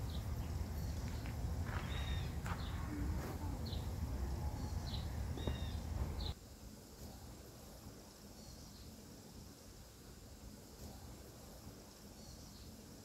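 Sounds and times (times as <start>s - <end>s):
bird chirping: 0.0s - 6.4s, 12.0s - 12.9s
low steady rumble: 0.0s - 6.4s.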